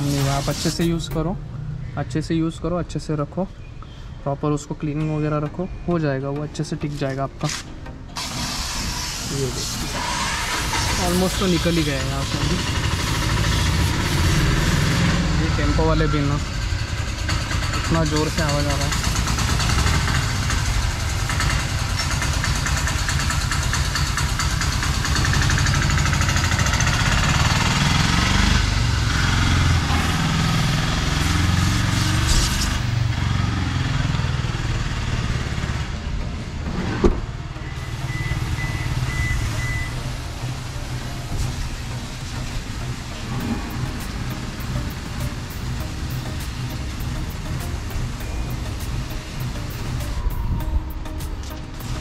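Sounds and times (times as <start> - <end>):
pressure washer spraying water: 0.0 - 1.2, 8.2 - 15.7, 16.5 - 33.4, 37.7 - 50.3, 51.3 - 52.0
engine rumbling: 0.0 - 52.0.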